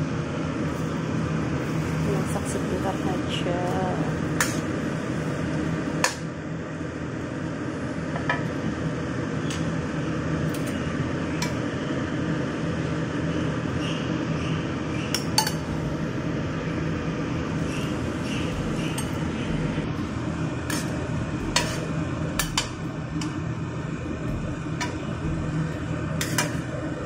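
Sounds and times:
steady low hum: 0.0 - 27.0
metal ladle tapping wok: 15.2 - 15.6, 20.7 - 23.4, 26.2 - 26.7.

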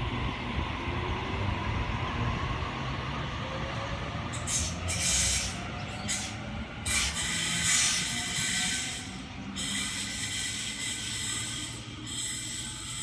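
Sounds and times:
train low rumble: 0.0 - 13.0
bursts of hiss: 6.9 - 12.6.

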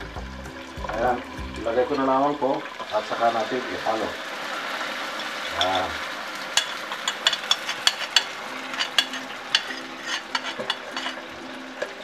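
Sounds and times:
sauce sizzling in a wok: 0.0 - 12.0.

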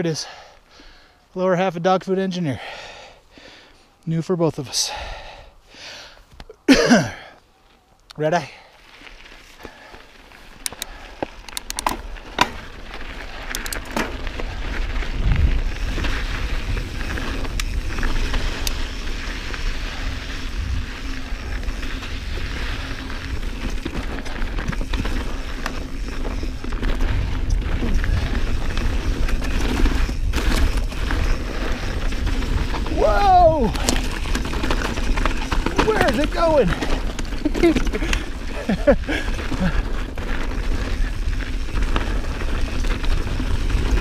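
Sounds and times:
tyres rolling over dirt and rocks: 8.8 - 44.0
bike frame rattling: 8.9 - 44.0
bike clicks and knocks: 10.6 - 14.5, 33.6 - 44.0.

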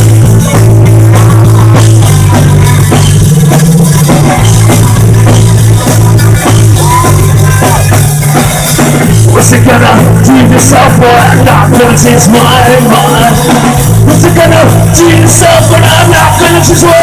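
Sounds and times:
bass notes: 0.0 - 17.0
drum kit: 0.0 - 17.0
electric guitar: 0.0 - 17.0.

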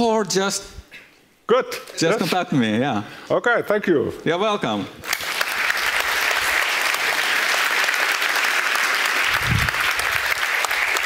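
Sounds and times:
large audience applauding: 5.0 - 11.0.

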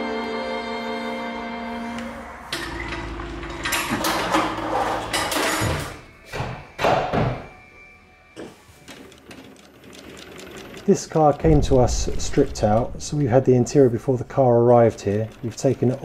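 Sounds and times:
background music: 0.0 - 16.0
low hum: 11.4 - 14.6.

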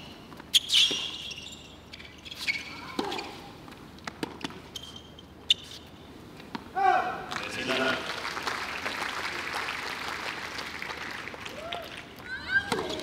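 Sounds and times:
shoes squeaking on court: 0.0 - 6.6, 12.6 - 13.0.

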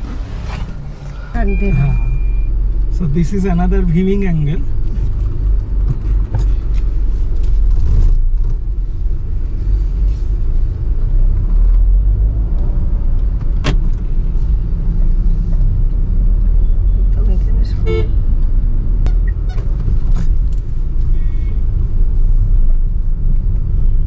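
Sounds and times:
car road and engine rumble: 0.0 - 24.0.

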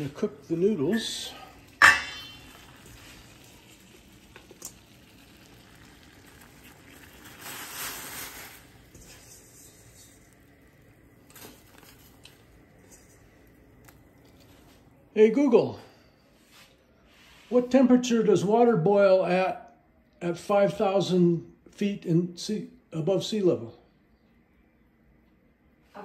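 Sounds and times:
water boiling in a pot: 0.0 - 15.0.

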